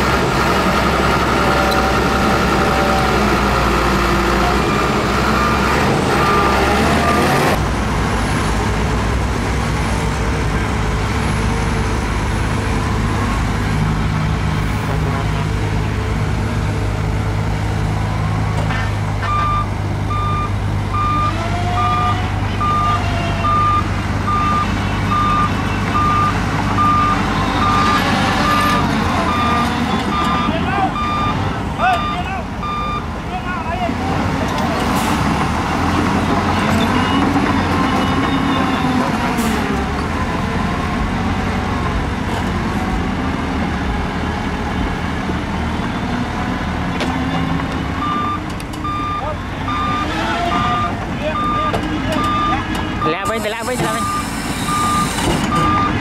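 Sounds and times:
heavy diesel machinery running: 0.0s - 56.0s
reversing alarm beeping: 19.2s - 33.1s, 48.0s - 56.0s.

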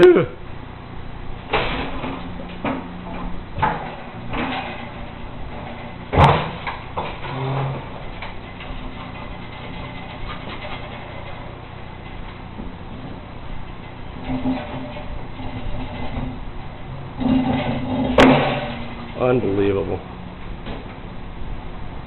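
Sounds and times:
water heater knocking and scraping: 12.1s - 19.2s.

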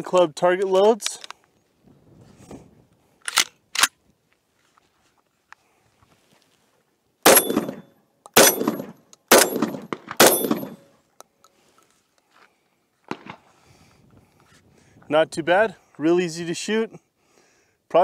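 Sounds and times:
shotgun shots echoing: 7.3s - 7.8s, 8.4s - 10.8s, 13.1s - 13.4s.

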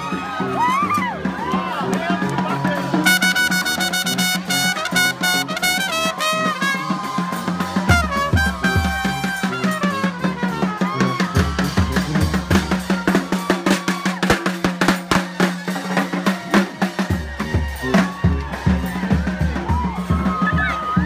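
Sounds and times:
marching brass band playing: 0.0s - 21.0s
steady drum beat: 0.0s - 21.0s.

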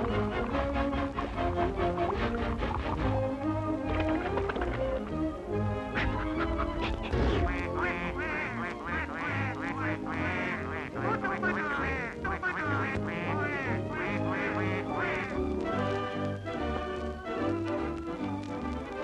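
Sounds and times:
bouncy orchestral music: 0.0s - 19.0s
cartoon duck quacking: 6.0s - 15.4s.

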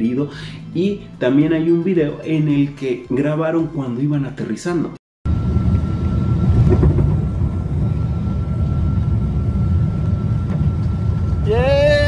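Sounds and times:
airliner engine rumble: 5.3s - 12.0s
thin high whine: 5.3s - 12.0s.

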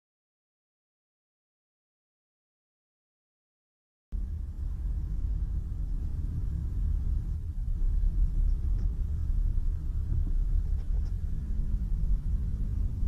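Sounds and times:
car road and engine rumble: 4.1s - 13.0s.

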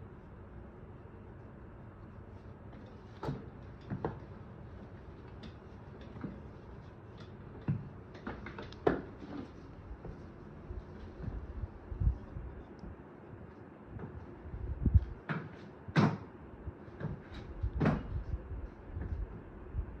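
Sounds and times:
knocks and scuffs on tiled floor: 17.0s - 19.3s.

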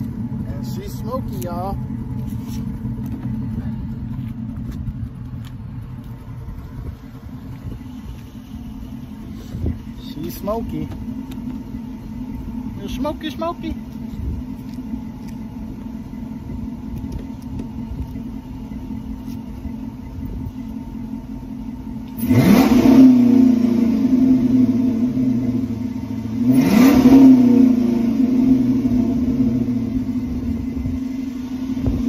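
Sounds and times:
car engine idling and revving: 0.0s - 32.0s.

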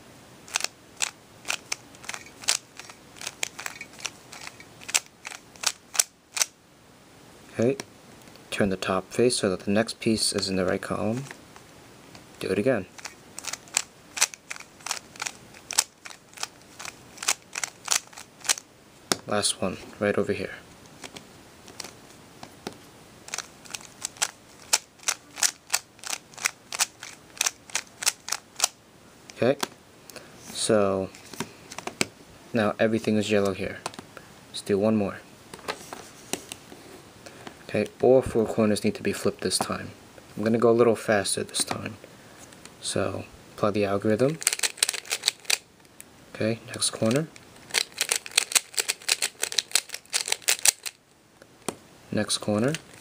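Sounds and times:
puzzle cube clicking as turned: 0.5s - 6.5s, 12.9s - 18.6s, 23.3s - 28.8s, 44.4s - 45.6s, 47.7s - 51.0s
puzzle cube layers clicking: 23.3s - 28.7s, 44.4s - 45.6s, 47.7s - 50.9s.

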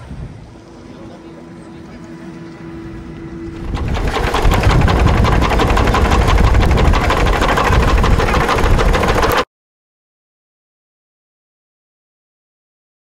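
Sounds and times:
steam capstan clattering: 3.6s - 9.4s.

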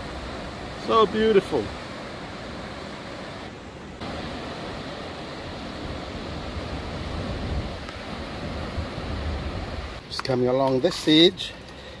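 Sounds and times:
ocean surf breaking: 0.0s - 10.2s
wind rumble on microphone: 4.1s - 10.0s.

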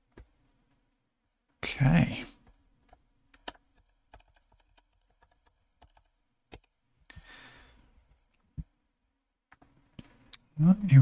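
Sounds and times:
computer keyboard keystrokes: 2.9s - 6.7s.

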